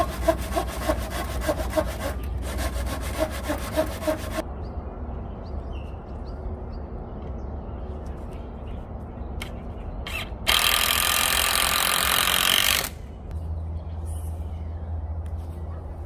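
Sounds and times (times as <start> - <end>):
cordless drill into timber: 10.1 - 13.0.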